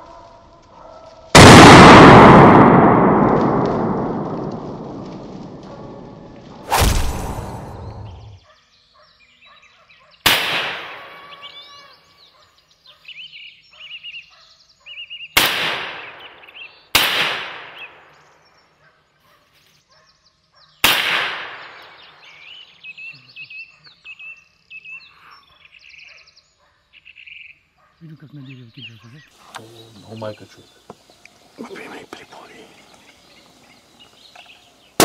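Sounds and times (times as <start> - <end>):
rifle shots echoing: 1.4 - 7.9, 10.3 - 11.3, 15.4 - 16.2, 16.9 - 18.1, 20.8 - 22.0.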